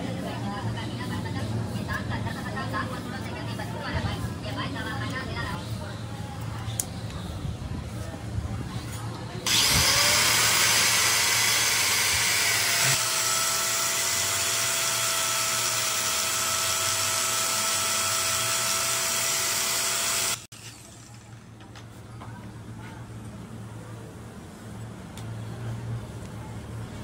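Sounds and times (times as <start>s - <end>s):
power tool hissing: 9.5s - 20.8s.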